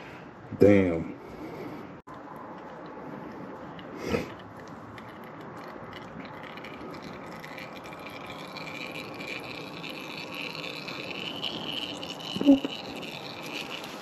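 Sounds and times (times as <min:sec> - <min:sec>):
oil pouring into drain pan: 0:05.0 - 0:14.0.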